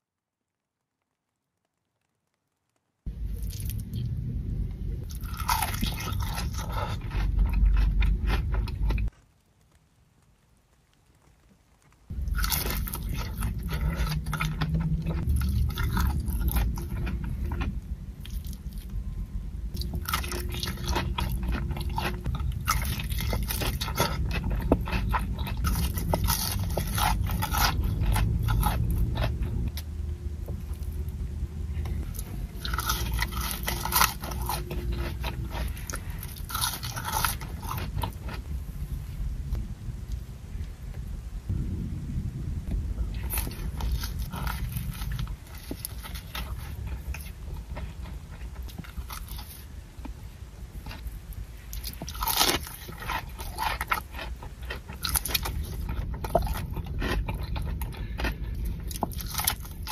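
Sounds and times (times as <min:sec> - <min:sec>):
chewing crispy fried chicken: 0:03.1 - 0:04.2, 0:05.0 - 0:09.8, 0:10.9 - 0:19.0, 0:19.7 - 0:38.5, 0:43.1 - 0:59.9
low rumble: 0:03.1 - 0:09.6, 0:12.0 - 0:59.9.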